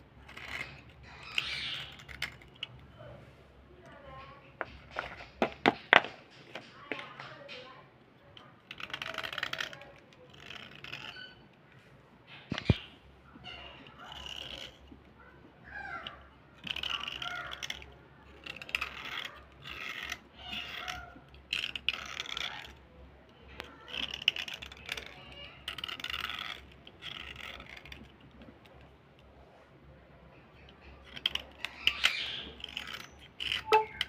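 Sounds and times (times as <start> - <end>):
blade scraping slate pencil: 0.1 - 2.8, 8.3 - 11.5, 12.5 - 15.0, 15.7 - 28.8, 30.3 - 34.0.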